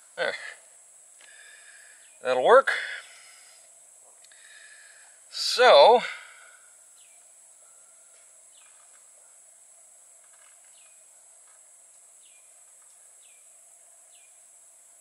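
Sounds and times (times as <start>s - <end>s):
small birds chirping: 1.2s - 6.0s, 6.7s - 9.4s, 10.2s - 14.5s.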